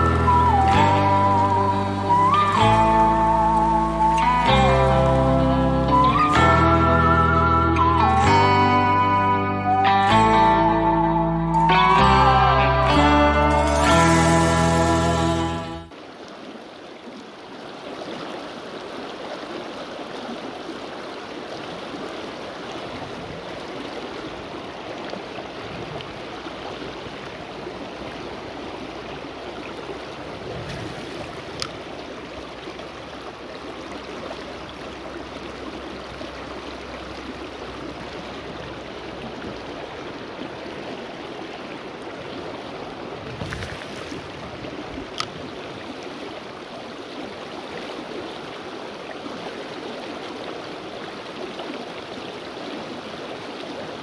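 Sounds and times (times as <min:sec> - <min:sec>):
river rushing over rocks: 0:00.0 - 0:06.4.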